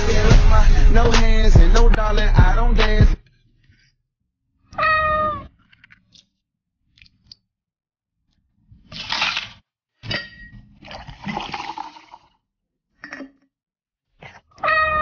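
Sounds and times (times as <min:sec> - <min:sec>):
glass clink: 0:10.0 - 0:10.7
liquid pouring into glass: 0:10.8 - 0:12.4
liquid poured over ice: 0:10.9 - 0:12.4.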